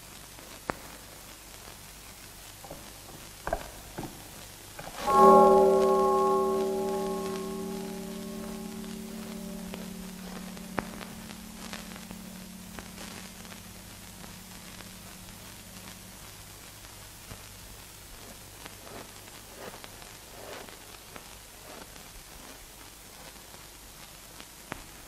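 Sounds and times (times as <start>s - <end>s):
film soundtrack hiss and crackle: 0.0s - 25.0s
held low music note: 5.0s - 16.3s.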